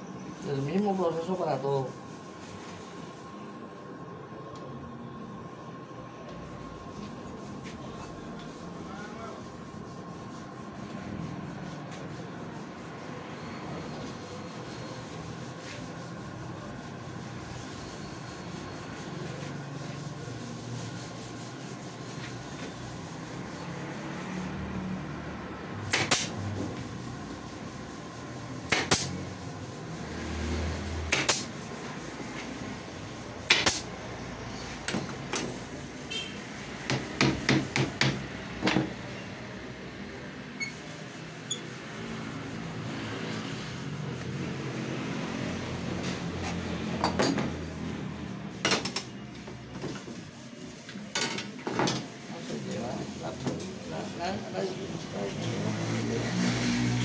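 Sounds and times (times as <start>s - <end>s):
low workshop background: 0.0s - 57.0s
pneumatic nail gun firing into wood: 25.9s - 26.4s, 28.7s - 29.2s, 31.1s - 31.5s, 33.5s - 33.8s.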